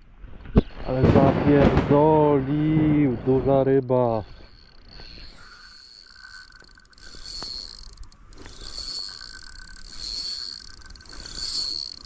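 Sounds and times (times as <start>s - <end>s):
fishing reel whirring: 2.5s - 12.0s.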